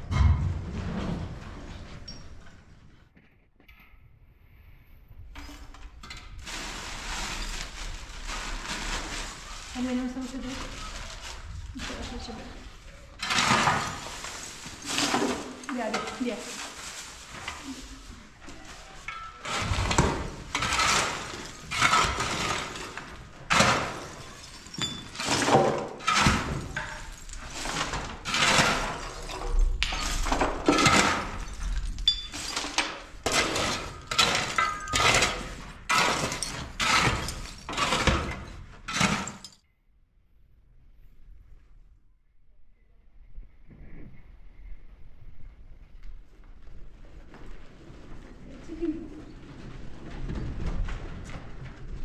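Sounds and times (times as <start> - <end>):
crunching clattering construction strokes: 5.4 - 39.6.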